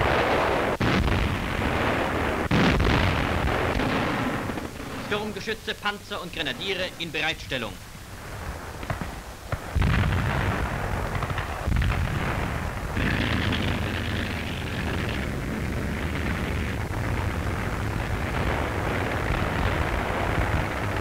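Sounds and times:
artillery fire: 0.0 - 21.0
hissing fire: 0.0 - 21.0
shell explosions: 0.0 - 21.0
heavy boom: 8.3 - 21.0.

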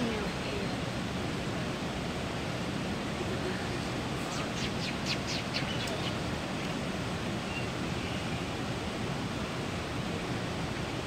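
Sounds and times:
running water rushing: 0.0 - 11.0
small bird chirping: 4.3 - 6.2.

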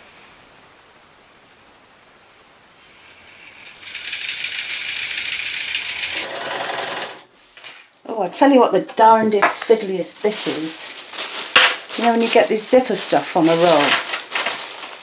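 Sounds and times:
sewing machine stitching fabric: 3.7 - 7.3.

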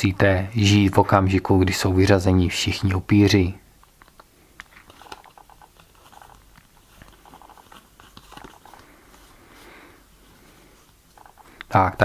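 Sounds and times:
cardboard cards clicking and rustling: 3.9 - 9.4, 11.0 - 11.7.

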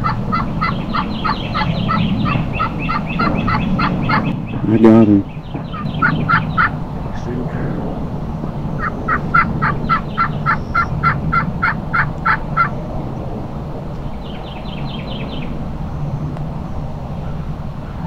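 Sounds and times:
wild turkey yelping: 0.0 - 4.9, 5.5 - 6.8, 8.8 - 12.8
steady low hum: 0.0 - 18.0.

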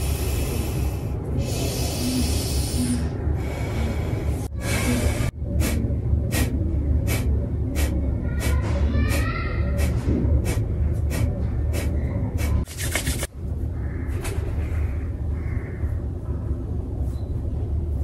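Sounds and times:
forceful nasal breathing: 0.0 - 12.7.

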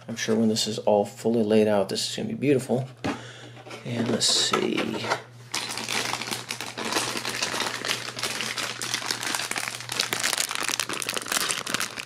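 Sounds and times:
plastic bags crinkling: 5.5 - 12.0.

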